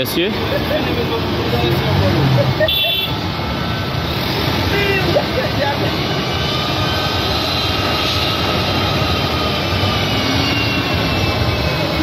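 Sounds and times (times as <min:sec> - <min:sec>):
aircraft engines roaring: 0:00.0 - 0:12.0.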